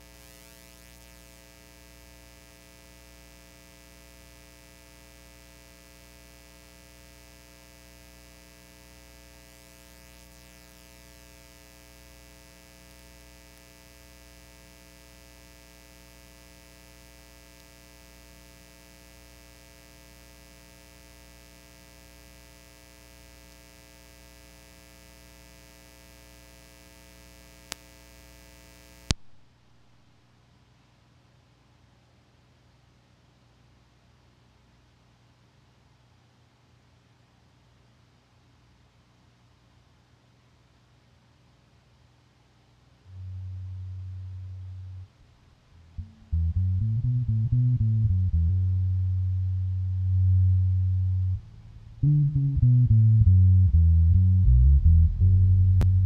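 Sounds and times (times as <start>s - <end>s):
electrical mains hum: 0.0s - 56.0s
faint click: 27.6s - 28.0s, 29.0s - 29.4s.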